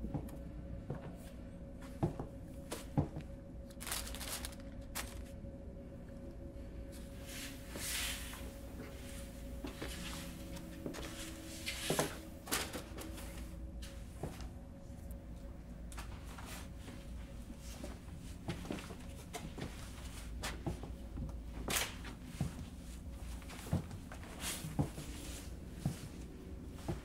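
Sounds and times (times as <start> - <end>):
low steady drone: 0.0 - 27.0
rummaging among cardboard boxes: 3.7 - 5.4.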